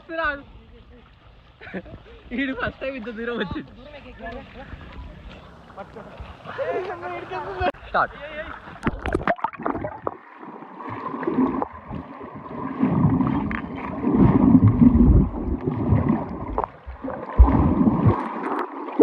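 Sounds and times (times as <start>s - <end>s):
underwater rumbling and bubbling: 8.6s - 19.0s.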